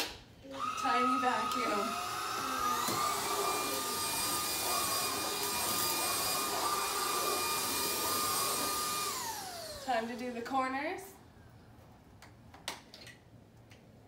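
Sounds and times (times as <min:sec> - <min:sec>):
vacuum cleaner motor whine: 0:00.5 - 0:10.3.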